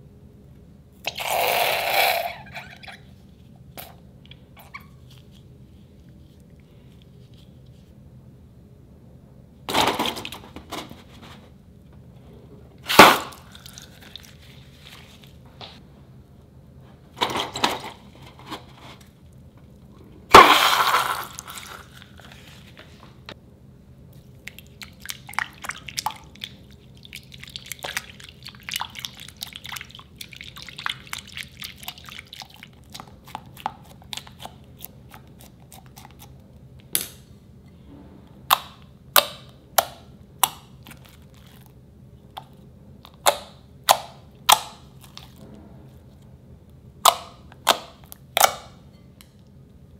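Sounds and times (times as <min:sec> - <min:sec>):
spatula stirring crackling slime: 0:13.0 - 0:15.4, 0:24.2 - 0:36.4, 0:40.4 - 0:43.2.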